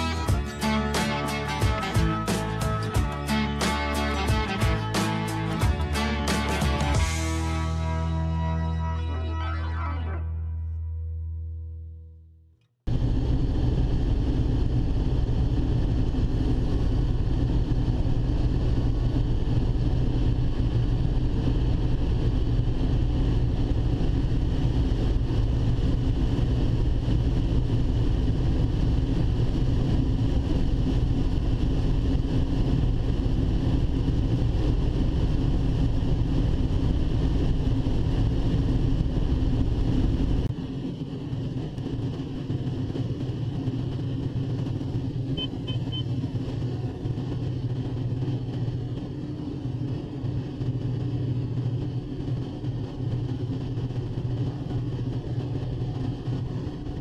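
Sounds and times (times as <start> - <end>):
combine harvester engine drone: 0.0 - 10.7, 12.9 - 57.0.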